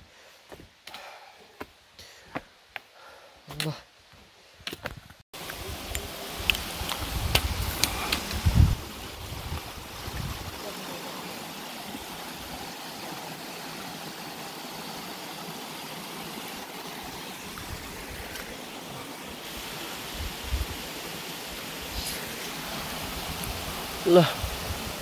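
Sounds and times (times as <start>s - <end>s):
stream flowing over rocks: 5.4s - 25.0s.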